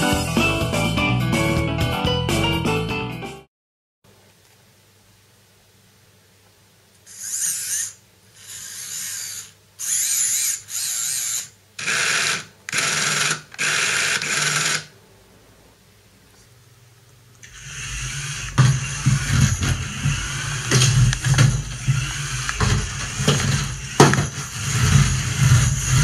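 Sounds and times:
small electric motors whining: 7.0s - 14.9s, 17.4s - 26.0s.

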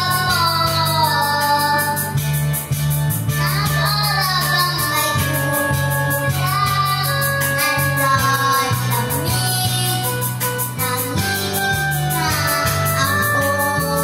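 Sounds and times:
boy singing pop ballad: 0.0s - 14.0s
karaoke backing track: 0.0s - 14.0s.

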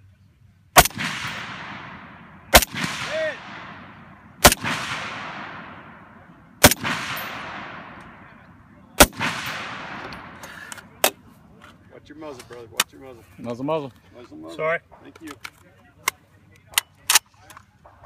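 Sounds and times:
rifle shots with echo: 0.8s - 11.3s.

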